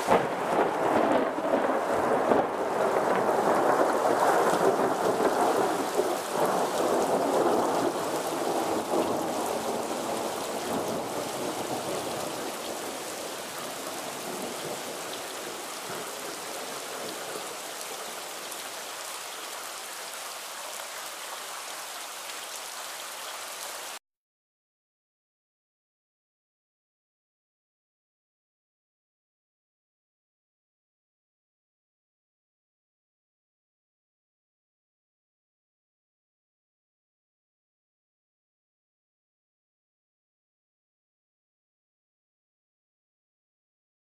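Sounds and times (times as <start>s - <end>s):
steady rainfall: 0.0s - 24.0s
thunder rumbling and cracking: 0.1s - 17.4s.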